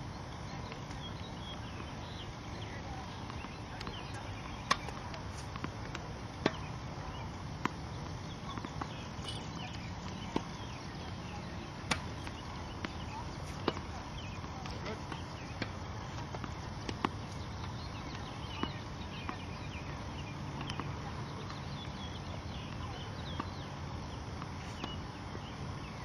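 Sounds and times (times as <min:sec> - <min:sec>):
tennis balls struck by racquets: 0:00.5 - 0:26.0.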